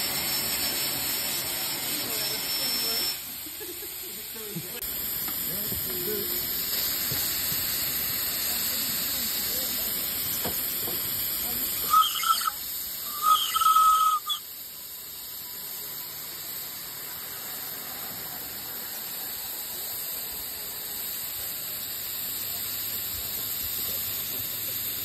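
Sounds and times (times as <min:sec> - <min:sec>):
steam hissing from safety valve: 0:00.0 - 0:25.0
high whistle toot: 0:11.8 - 0:14.5.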